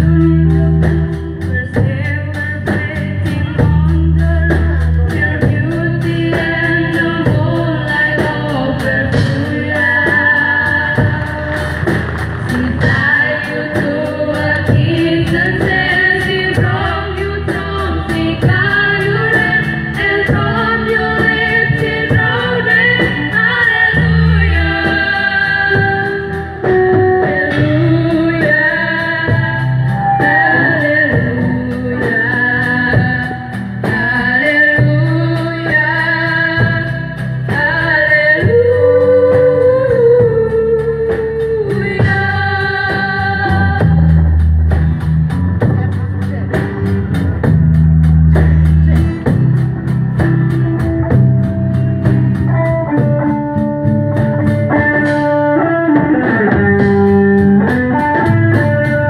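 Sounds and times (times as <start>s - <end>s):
live band playing: 0.0s - 59.0s
girls singing together: 12.5s - 26.3s.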